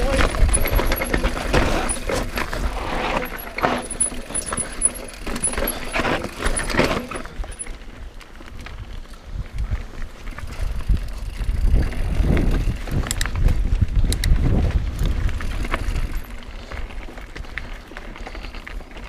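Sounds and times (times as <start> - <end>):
bike knocking over bumps: 0.0 - 7.6
tyres crunching on stones: 0.0 - 11.0
bike rattling on rocky trail: 0.0 - 19.0.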